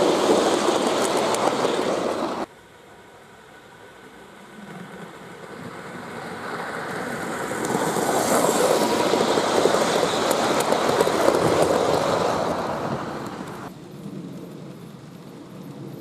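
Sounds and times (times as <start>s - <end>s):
model train wheels rumbling: 0.0s - 2.5s, 3.6s - 15.9s.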